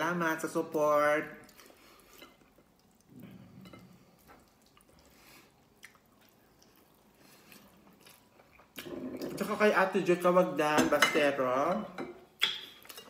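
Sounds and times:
person chewing: 1.4s - 9.4s.

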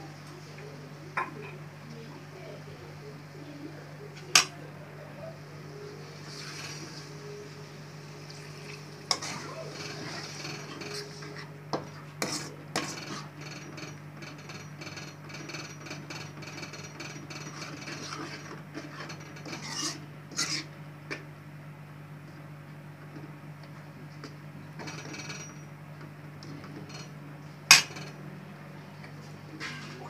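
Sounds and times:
steady low hum: 0.0s - 30.0s
ladle scraping a pan: 8.7s - 13.4s, 17.3s - 20.7s, 29.5s - 30.0s.

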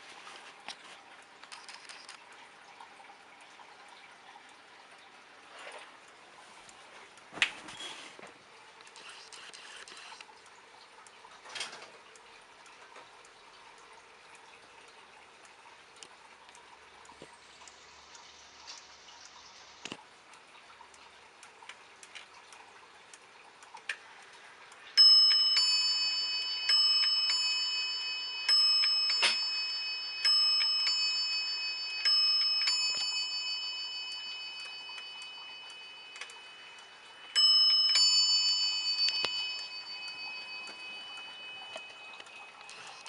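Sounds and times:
pendulum clock ticking: 2.1s - 7.3s, 10.2s - 43.0s
clock bells chiming ding-dong: 25.0s - 43.0s.

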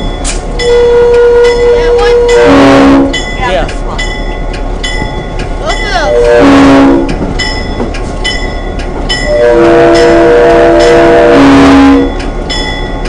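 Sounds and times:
locomotive engine rumble: 0.0s - 13.0s
locomotive air horn blast: 0.7s - 3.2s, 6.1s - 7.1s, 9.3s - 12.1s.

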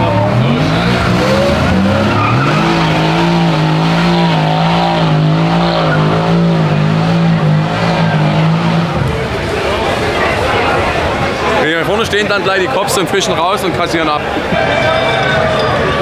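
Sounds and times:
tyres squealing: 0.0s - 8.8s
car engine revving: 0.0s - 11.6s.

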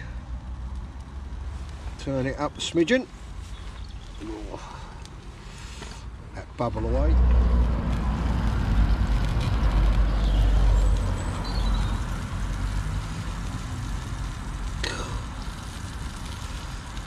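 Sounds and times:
food sizzling and bubbling: 0.0s - 17.0s
gas burner rushing: 4.3s - 17.0s.

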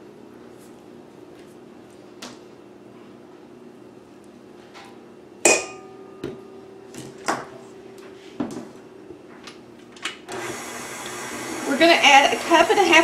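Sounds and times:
utensils knocking on metal bowl: 5.5s - 6.4s
stand mixer motor whirring: 10.3s - 13.0s.

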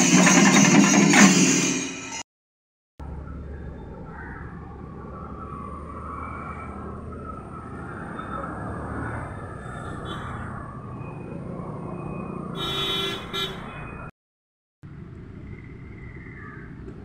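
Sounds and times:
outdoor background noise: 3.0s - 14.1s, 14.8s - 17.0s.

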